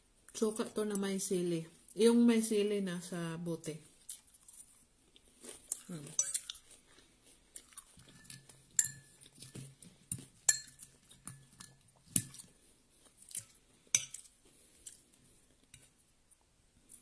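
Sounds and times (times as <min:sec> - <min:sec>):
chewing: 0:03.9 - 0:15.7
metal spoon clinking ceramic bowl: 0:06.2 - 0:06.5, 0:08.2 - 0:09.2, 0:10.5 - 0:12.3, 0:14.0 - 0:14.2
spoon scraping: 0:07.7 - 0:09.6, 0:10.4 - 0:15.0.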